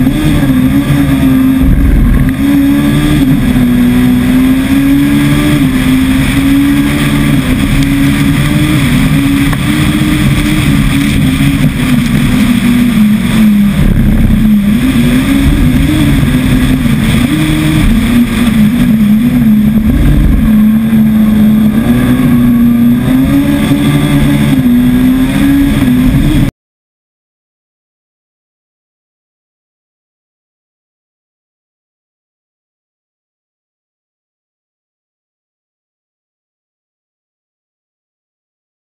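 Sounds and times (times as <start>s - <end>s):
car engine at high revs: 0.0s - 26.5s
wind and road noise: 0.0s - 26.5s.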